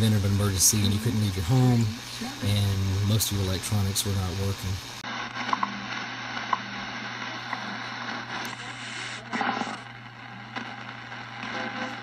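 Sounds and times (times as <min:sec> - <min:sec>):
burst of radio noise: 0:00.0 - 0:12.0
shortwave radio static: 0:00.0 - 0:12.0
radio tone chirps: 0:05.0 - 0:12.0.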